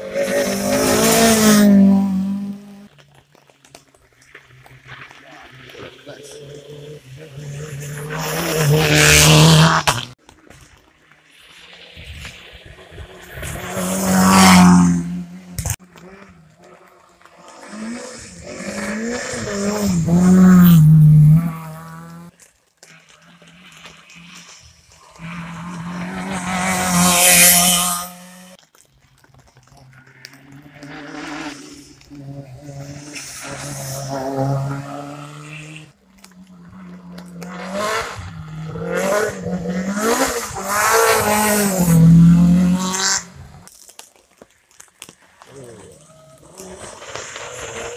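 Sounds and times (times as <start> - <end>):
rally car passing at speed: 0.0 - 10.2, 11.3 - 28.6, 29.9 - 43.7, 45.9 - 47.9
distant car engine: 12.4 - 28.6, 30.0 - 43.7.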